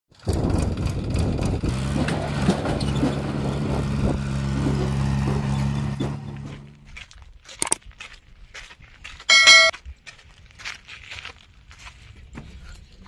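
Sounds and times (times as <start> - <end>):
knocks and rattles: 0.2 - 6.8
tractor diesel engine running: 0.2 - 7.8.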